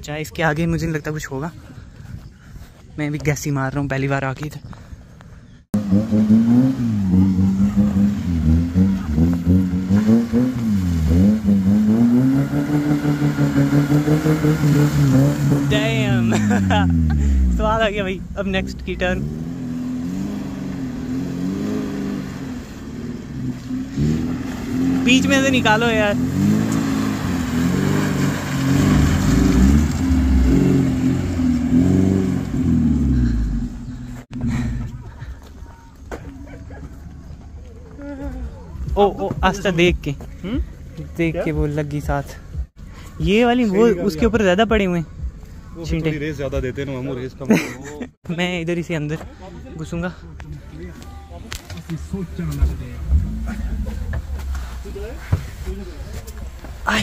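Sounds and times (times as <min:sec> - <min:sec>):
engine revving: 0:05.7 - 0:34.9, 0:51.7 - 0:56.2.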